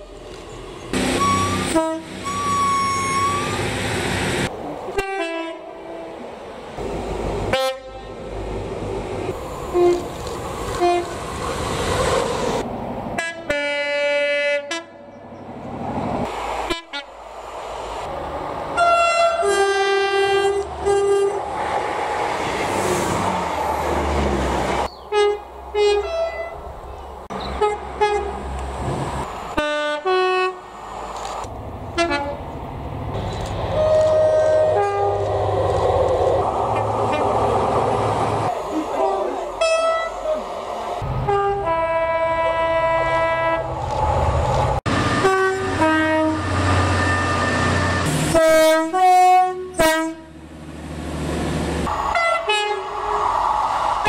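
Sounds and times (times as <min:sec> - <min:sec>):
trains rumbling: 0:00.0 - 0:54.0
two-tone train horns: 0:01.1 - 0:03.6, 0:05.0 - 0:05.8, 0:07.5 - 0:08.2, 0:09.7 - 0:10.1, 0:10.8 - 0:11.2, 0:13.2 - 0:15.1, 0:18.8 - 0:21.4, 0:25.1 - 0:26.6, 0:27.6 - 0:28.4, 0:29.6 - 0:30.6, 0:32.0 - 0:32.4, 0:33.8 - 0:35.2, 0:39.6 - 0:40.2, 0:41.2 - 0:43.7, 0:45.0 - 0:50.4, 0:52.0 - 0:53.0.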